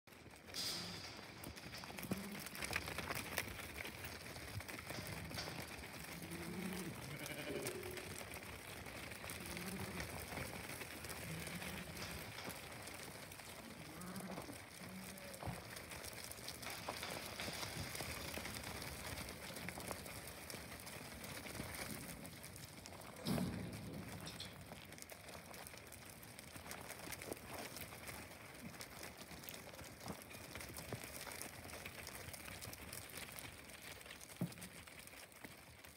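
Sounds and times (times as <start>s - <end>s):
sheep hooves shuffling: 0.1s - 35.9s
sheep bleating: 6.1s - 8.2s, 9.2s - 10.4s.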